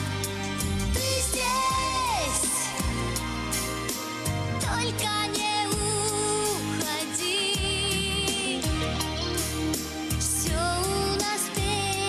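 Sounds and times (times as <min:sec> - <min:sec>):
band accompaniment: 0:00.0 - 0:12.0
drum beats: 0:00.0 - 0:12.0
woman singing a pop ballad: 0:00.9 - 0:03.2, 0:04.6 - 0:09.3, 0:09.9 - 0:12.0.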